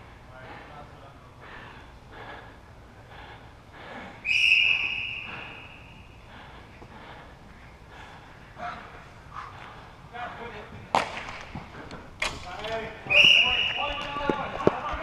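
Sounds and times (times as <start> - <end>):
referee's whistle blast: 4.3 - 5.9, 13.1 - 14.0.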